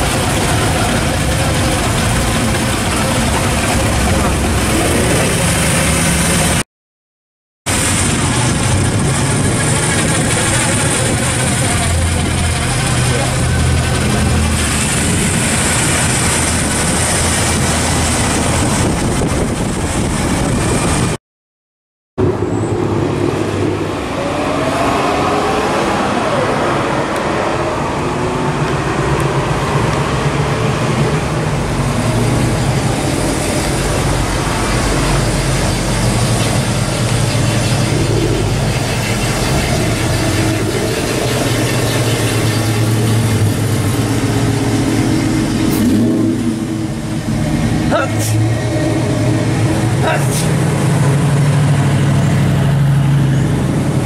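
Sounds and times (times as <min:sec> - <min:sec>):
car engines and exhausts: 0:00.0 - 0:06.6, 0:07.7 - 0:21.2, 0:22.2 - 0:54.0.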